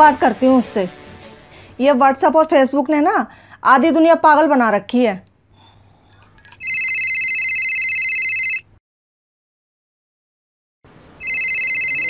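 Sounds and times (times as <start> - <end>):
telephone trilling ring: 6.5 - 8.7, 11.2 - 12.0.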